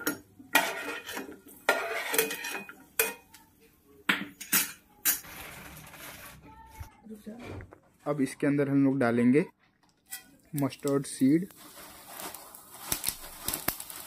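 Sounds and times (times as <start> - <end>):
metal spoon scraping frying pan: 0.5 - 3.2.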